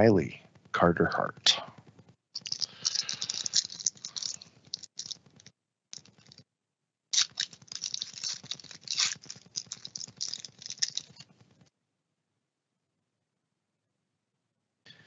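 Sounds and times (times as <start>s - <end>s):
foil wrapper crinkling: 2.4s - 6.4s, 7.1s - 11.3s.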